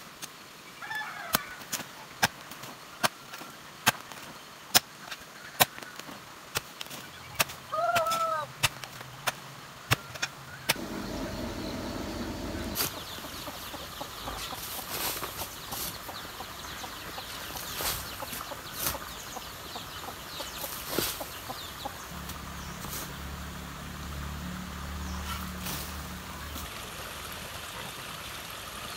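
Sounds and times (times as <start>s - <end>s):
garden hoe chopping into soil: 10.7s - 16.2s, 17.4s - 19.2s, 20.4s - 21.4s
steady low hum: 10.8s - 14.6s.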